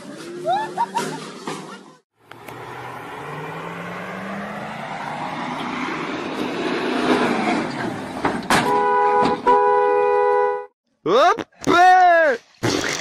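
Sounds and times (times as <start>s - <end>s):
vehicle approaching: 0.0s - 8.4s
vehicle horn blasts: 8.6s - 10.7s.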